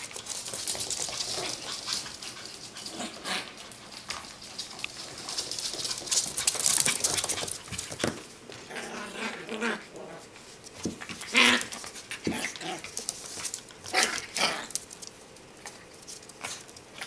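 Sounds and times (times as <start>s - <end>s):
puppies scuffling on wooden floor: 0.0s - 8.7s, 10.3s - 17.0s
puppy growls and whines: 8.7s - 10.3s.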